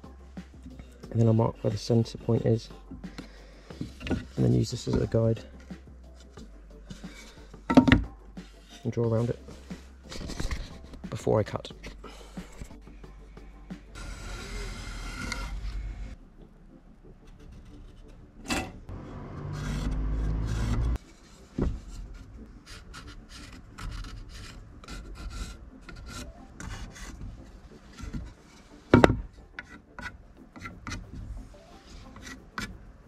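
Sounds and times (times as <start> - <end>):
pencil scratching on wood: 14.0 - 15.9, 17.2 - 18.2, 19.4 - 31.1, 31.7 - 32.8.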